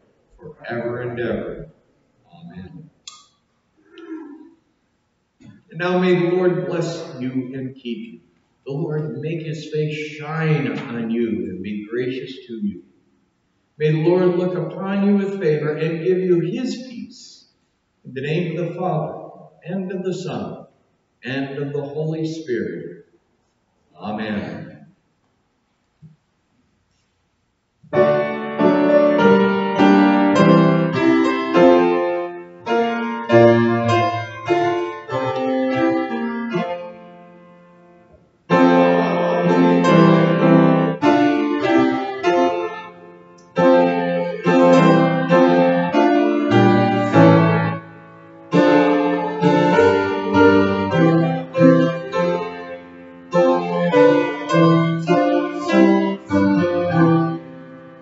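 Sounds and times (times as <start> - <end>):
solo piano playing: 27.9 - 58.0.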